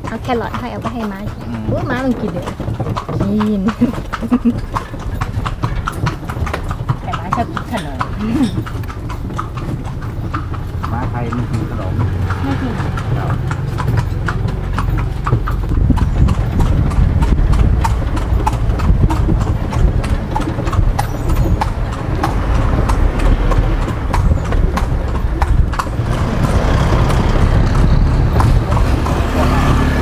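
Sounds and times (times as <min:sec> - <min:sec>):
horse hooves clip-clopping on pavement: 0:00.0 - 0:30.0
low rumble: 0:13.7 - 0:30.0.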